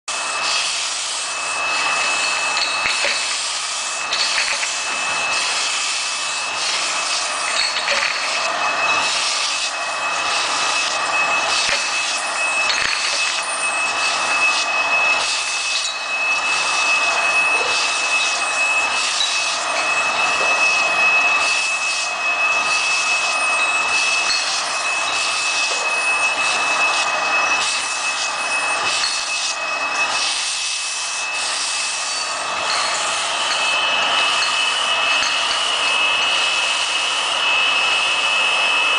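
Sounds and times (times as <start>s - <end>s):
high-pitched machine whine: 0.1s - 38.9s
labeling machine running: 0.1s - 38.9s
bottles clicking and knocking: 1.9s - 3.5s, 4.1s - 5.4s, 6.6s - 9.3s, 11.5s - 13.4s.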